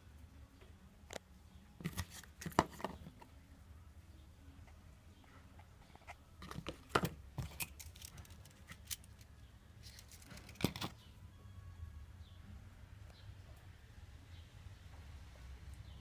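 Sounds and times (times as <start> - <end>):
paper and plastic rustling: 9.8 - 11.0.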